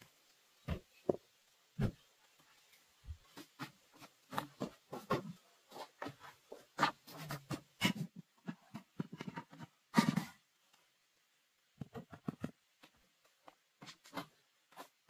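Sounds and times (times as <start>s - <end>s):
stones knocking and scraping: 11.8s - 12.7s.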